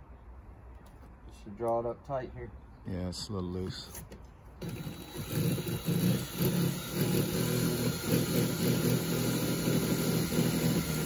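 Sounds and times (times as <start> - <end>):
motor running with low pulsing: 4.6 - 11.0.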